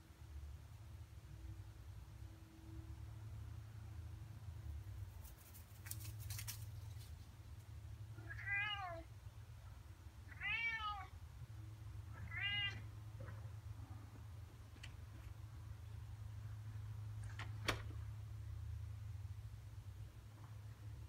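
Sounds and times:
cat meowing: 0:08.2 - 0:09.1, 0:10.3 - 0:11.2, 0:12.1 - 0:12.9.

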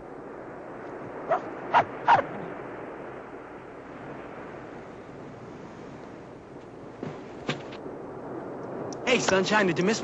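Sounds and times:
wind: 0:00.0 - 0:10.0
dog yipping: 0:01.3 - 0:02.2.

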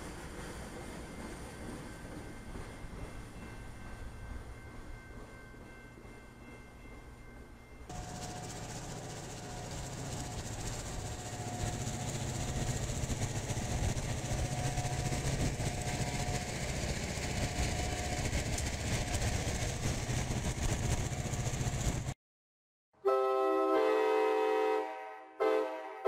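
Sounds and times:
diesel locomotive engine rumbling: 0:00.0 - 0:22.2
train horn chord: 0:23.0 - 0:26.0.

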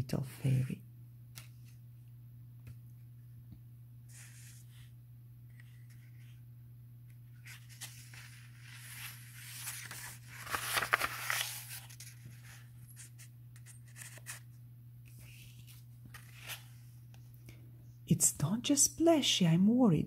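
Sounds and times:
book page turning: 0:01.3 - 0:01.8, 0:04.1 - 0:04.9, 0:05.5 - 0:06.4, 0:07.1 - 0:17.3.

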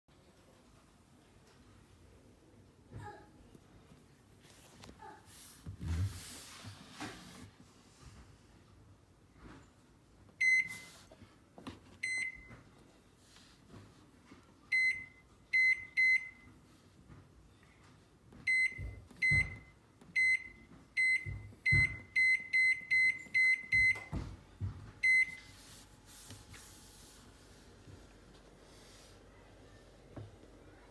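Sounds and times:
microwave keypad beeps: 0:10.4 - 0:11.0, 0:12.0 - 0:12.5, 0:14.7 - 0:16.5, 0:18.5 - 0:24.2, 0:25.0 - 0:25.4.

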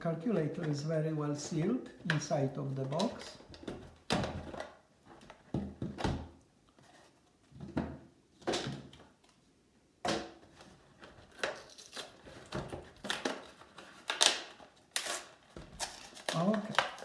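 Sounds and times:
plastic packaging crinkling: 0:11.2 - 0:17.0.

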